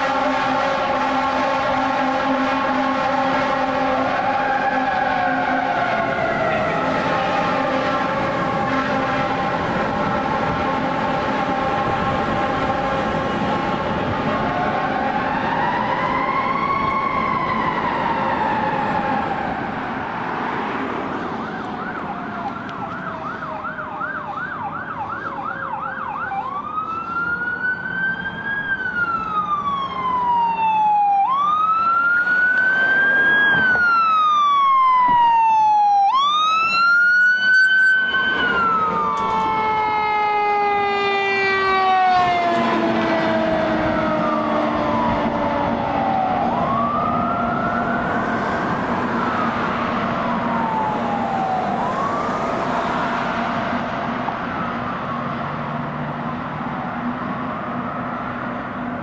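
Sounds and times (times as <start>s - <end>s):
horn blast: 0.0s - 14.1s
fire truck siren: 0.0s - 59.0s.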